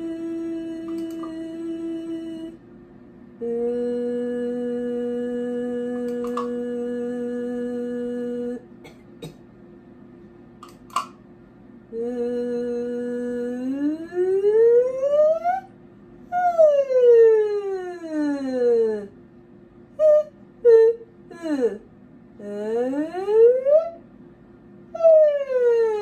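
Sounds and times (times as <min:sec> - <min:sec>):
woman singing sustained vowel: 0:00.0 - 0:02.6, 0:03.4 - 0:08.7, 0:11.9 - 0:15.7, 0:22.4 - 0:24.0.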